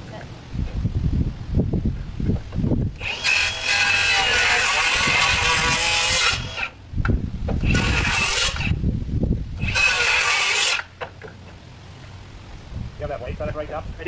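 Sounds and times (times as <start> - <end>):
low rumbling: 0.0 - 3.2
power saw cutting wood: 3.0 - 6.8, 7.6 - 8.8, 9.6 - 11.0.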